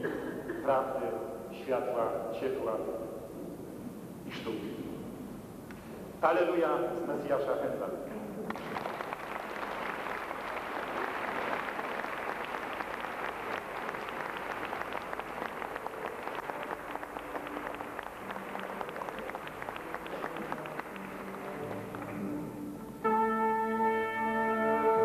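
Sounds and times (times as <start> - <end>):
audience applauding: 8.5 - 22.6
orchestra low held notes: 10.0 - 25.0.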